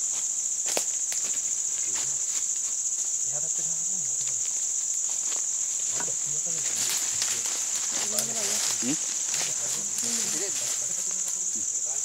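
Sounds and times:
insect chorus drone: 0.0 - 12.0
faint distant voices: 5.9 - 12.0.

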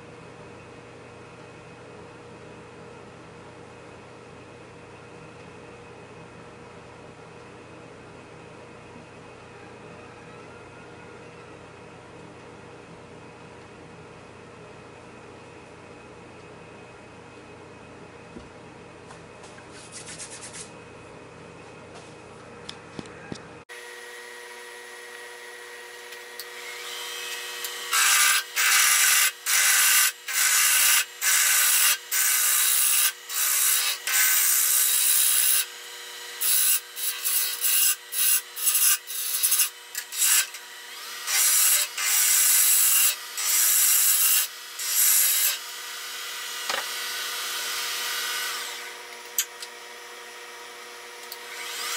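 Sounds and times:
wood lathe humming: 23.7 - 51.9.

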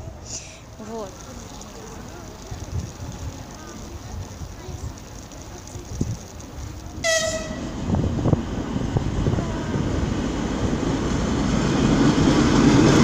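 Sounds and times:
train rumble and wheel knocks: 2.3 - 13.0
locomotive horn toot: 7.0 - 7.7.

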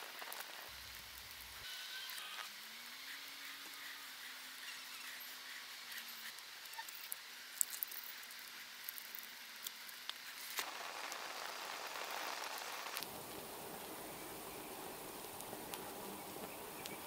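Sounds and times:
hot resin crackling: 0.0 - 17.0
torch burning with hiss: 0.0 - 17.0.

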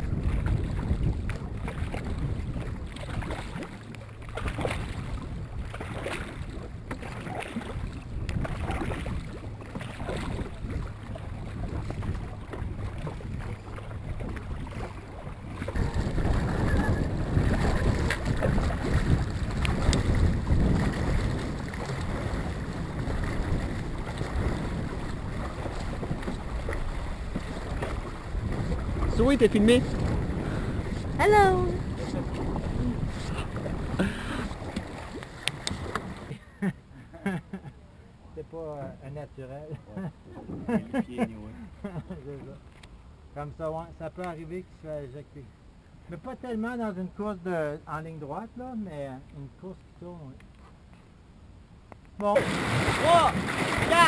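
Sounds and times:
wind buffeting microphone: 0.0 - 36.4
paddles pulling through water: 0.0 - 51.1, 52.2 - 54.0.

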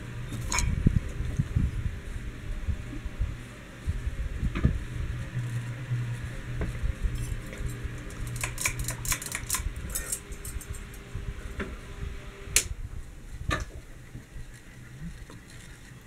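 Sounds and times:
ceiling fan motor hum: 0.0 - 16.0.

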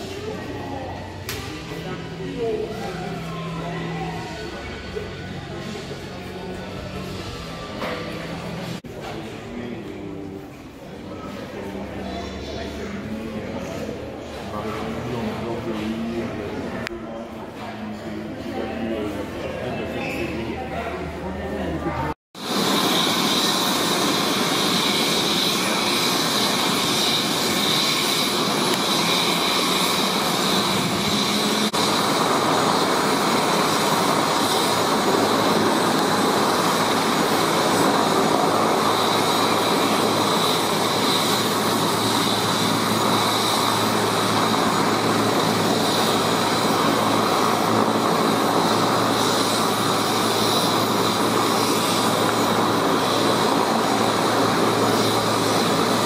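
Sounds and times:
helicopter turbine whine: 0.0 - 8.8, 22.4 - 56.0
rushing noise: 22.4 - 56.0.

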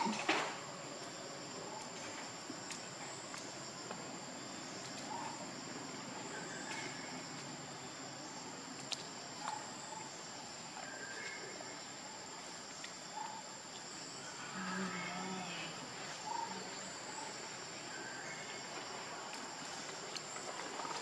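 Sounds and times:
faint sharp clicks: 8.8 - 9.6.

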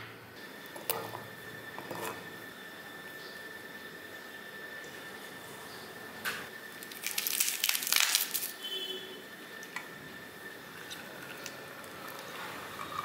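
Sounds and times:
crackly rustling of herbs: 6.7 - 8.6.

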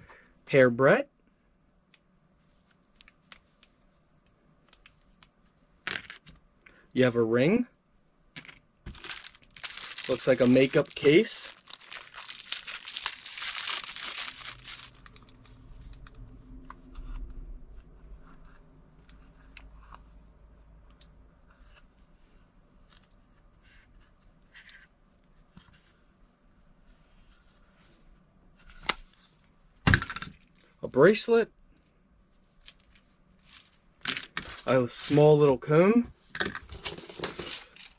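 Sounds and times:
plastic bag crinkling and tearing: 8.9 - 16.0.

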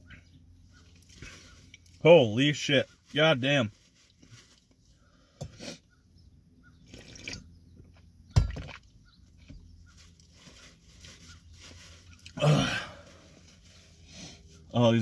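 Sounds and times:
person gulping milk: 6.9 - 7.5.

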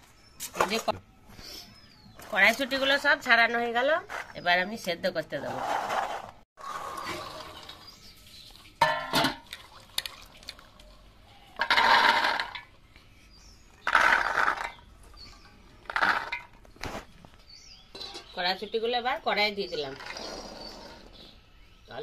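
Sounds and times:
water swishing and splashing: 9.4 - 11.2.

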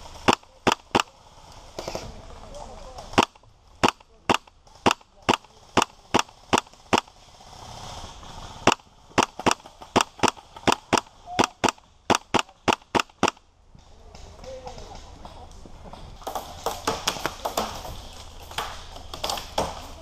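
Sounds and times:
airsoft gun firing shots: 0.2 - 1.1, 3.1 - 7.2, 8.6 - 13.4.

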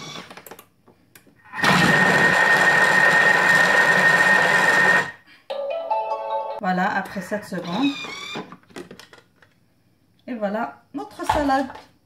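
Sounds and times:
food processor blade whirring: 1.5 - 5.2.

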